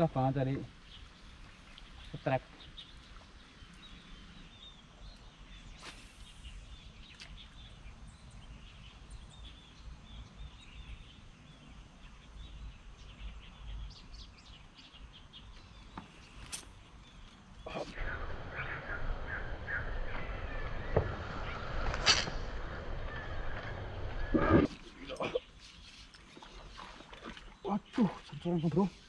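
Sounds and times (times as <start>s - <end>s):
small birds chirping: 0.0s - 29.0s
steady low rumble: 17.9s - 24.8s.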